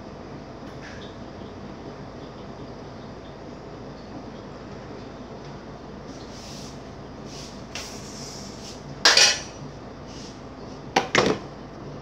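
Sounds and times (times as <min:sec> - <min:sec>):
dishes and utensils clattering: 0:09.0 - 0:09.6.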